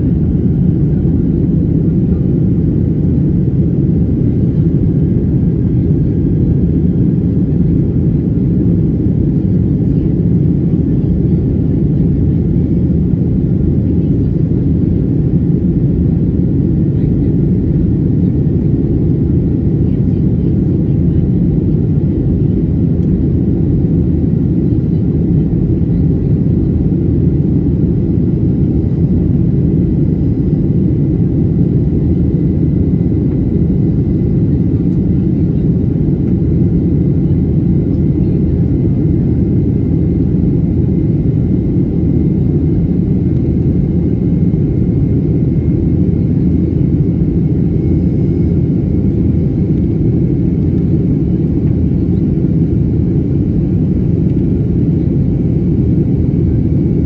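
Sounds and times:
airplane cabin engine roar: 0:00.0 - 0:57.0.

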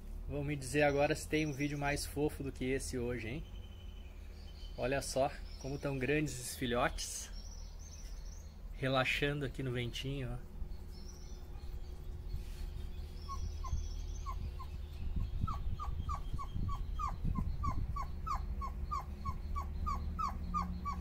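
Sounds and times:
electric fan humming: 0:00.0 - 0:19.8
puppy whimpering: 0:13.2 - 0:21.0.

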